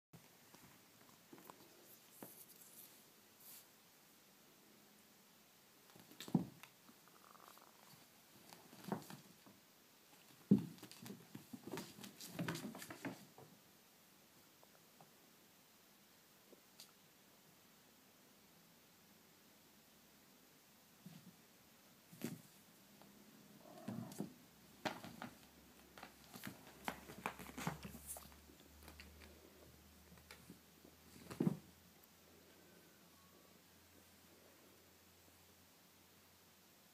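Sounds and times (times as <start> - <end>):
kittens scuffling: 7.8 - 13.5, 23.6 - 31.8.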